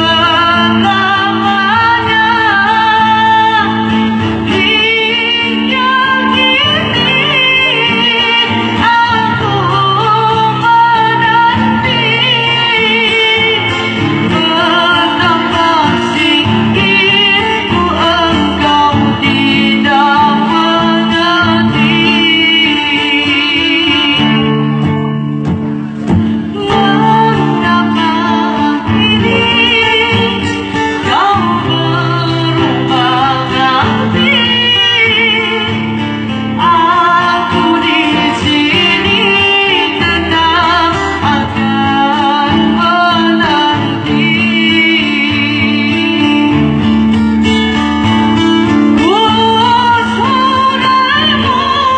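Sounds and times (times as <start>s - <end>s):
woman singing: 0.0s - 25.3s, 26.1s - 51.9s
acoustic guitar strumming: 0.0s - 51.9s.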